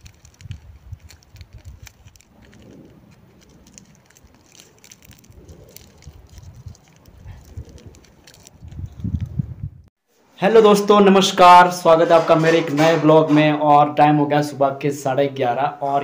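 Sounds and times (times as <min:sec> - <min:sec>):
scrapes against tree bark: 0:00.0 - 0:09.3.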